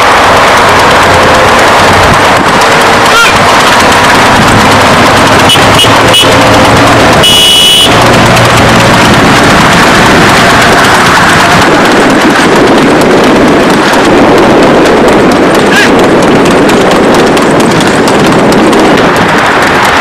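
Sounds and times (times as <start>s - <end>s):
long horn blast: 0.0s - 11.5s
wind and road noise: 0.0s - 20.0s
horn beeps: 5.2s - 8.1s.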